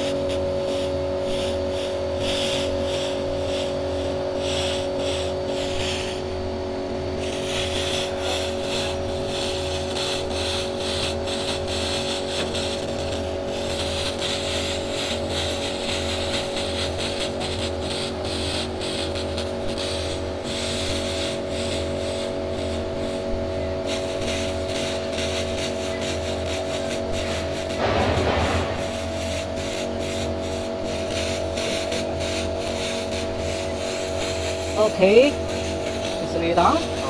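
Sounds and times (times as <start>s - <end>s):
laser beam hissing crackle: 0.0s - 6.4s, 7.2s - 37.0s
machine humming: 21.5s - 37.0s.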